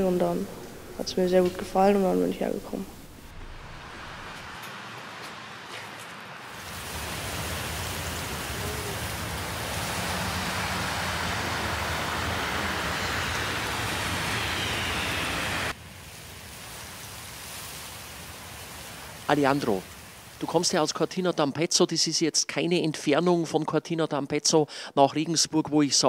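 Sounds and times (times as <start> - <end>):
quiet hiss: 0.0 - 5.0
bus driving: 0.0 - 15.8.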